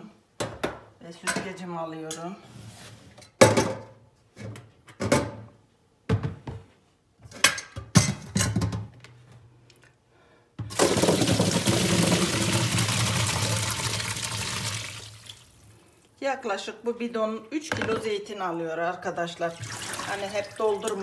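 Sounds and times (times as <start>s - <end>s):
bowl and colander clattering in sink: 10.7s - 14.0s
olives tumbling into colander: 10.7s - 15.6s, 19.5s - 21.0s
water splashing into sink: 10.7s - 15.7s, 19.4s - 21.0s.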